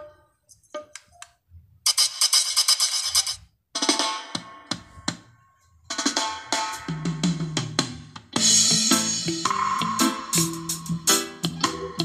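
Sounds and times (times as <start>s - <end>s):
drum-heavy music on small speaker: 3.8s - 12.0s.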